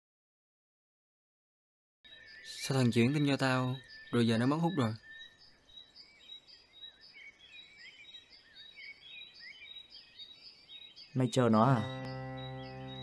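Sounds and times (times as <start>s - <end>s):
small birds chirping: 2.1s - 13.0s
steady high-pitched tone: 11.8s - 13.0s.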